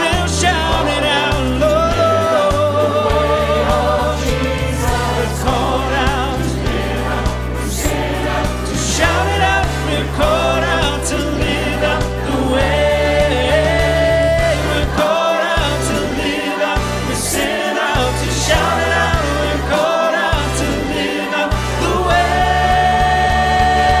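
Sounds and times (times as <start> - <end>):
choir singing a worship song: 0.0 - 24.0
low bass line: 0.2 - 15.0, 15.6 - 17.4, 18.0 - 19.8, 20.4 - 21.0, 21.6 - 24.0.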